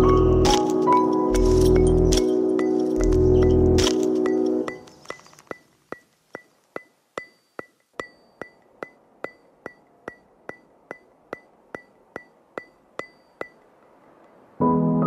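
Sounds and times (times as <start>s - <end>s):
background music: 0.0s - 4.9s, 14.6s - 15.0s.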